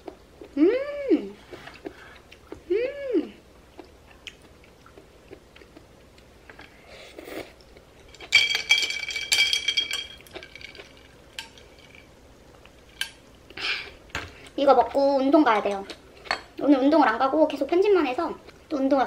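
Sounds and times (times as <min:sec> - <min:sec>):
utensils clinking against dishes: 0:08.0 - 0:12.0.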